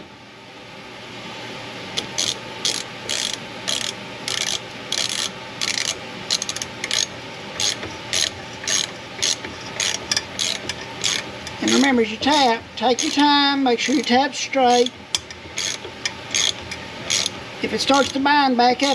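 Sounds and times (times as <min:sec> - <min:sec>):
socket ratchet clicking: 0:02.0 - 0:13.3, 0:13.9 - 0:17.4.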